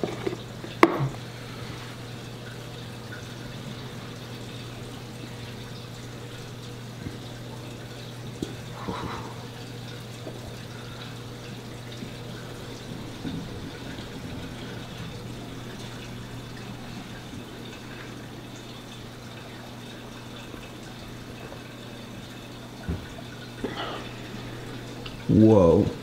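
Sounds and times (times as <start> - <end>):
water trickling: 0.0 - 26.0
low hum: 1.1 - 20.6.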